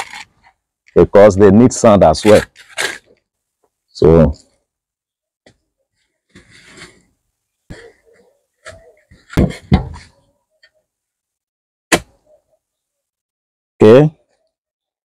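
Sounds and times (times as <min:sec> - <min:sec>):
knocks and scrapes: 0:02.2 - 0:03.2, 0:06.3 - 0:07.9, 0:08.6 - 0:10.3.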